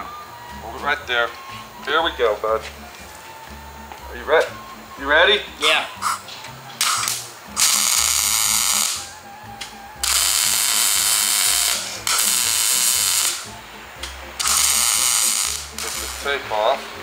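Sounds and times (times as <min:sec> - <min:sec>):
welding arc crackle: 0:06.0 - 0:06.2, 0:06.8 - 0:16.6.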